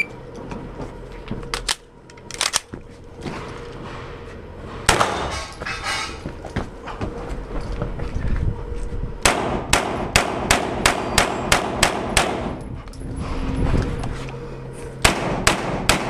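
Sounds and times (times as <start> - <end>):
movement and rustling: 0.2 - 9.2, 12.6 - 15.0
rifle shots: 9.2 - 12.6, 15.0 - 16.0.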